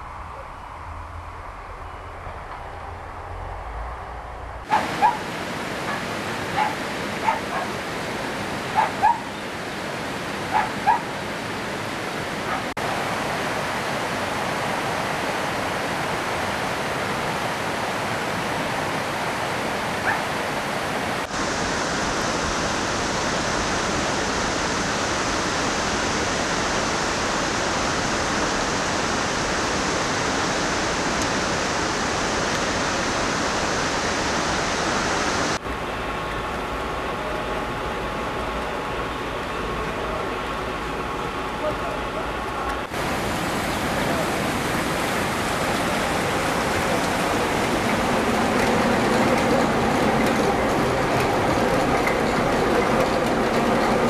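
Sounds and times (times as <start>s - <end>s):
running water rushing: 4.6s - 54.0s
dog barking: 4.7s - 7.8s, 8.7s - 9.3s, 10.5s - 11.1s, 12.5s - 12.7s, 20.0s - 20.3s.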